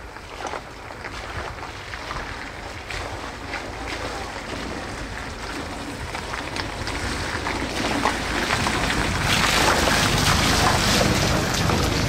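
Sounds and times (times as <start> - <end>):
tyres crackling on wet gravel: 0.0 - 12.0
jeep engine running: 2.8 - 12.0.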